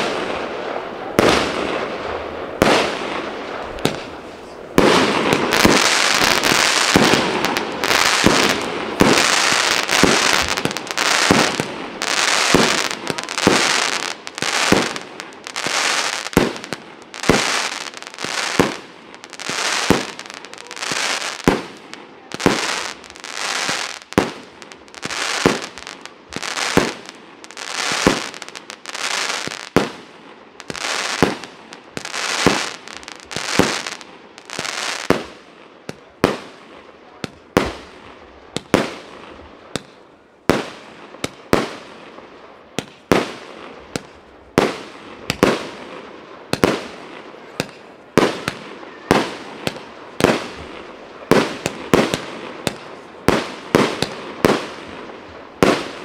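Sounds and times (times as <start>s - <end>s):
firework shots: 0.0s - 56.0s
crackling hissing firework bursts: 2.5s - 35.2s.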